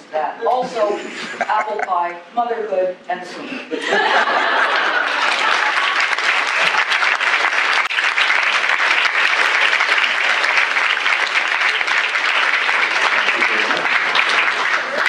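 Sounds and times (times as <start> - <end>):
audience applause: 4.1 - 15.0.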